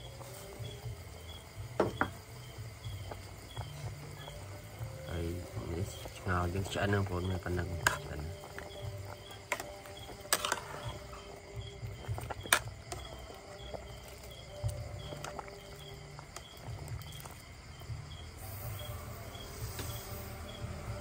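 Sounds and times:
insect chirping: 0.0s - 21.0s.

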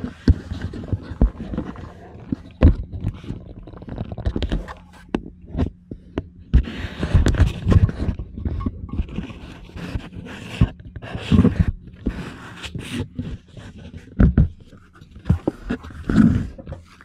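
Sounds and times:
low steady hum: 0.0s - 17.0s
camera handling rustles and scrapes: 6.6s - 17.0s.

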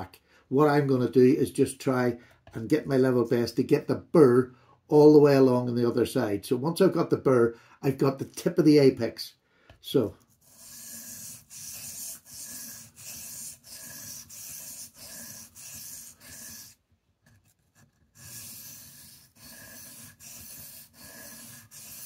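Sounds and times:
knife scraping on whetstone: 10.3s - 22.0s.

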